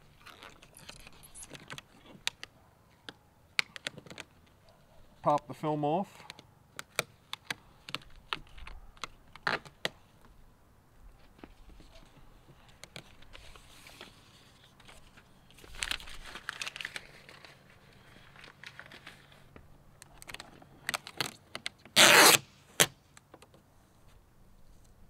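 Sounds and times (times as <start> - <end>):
vinyl film crinkling: 0.0 - 5.6, 11.1 - 23.2
loud tearing: 22.0 - 23.0.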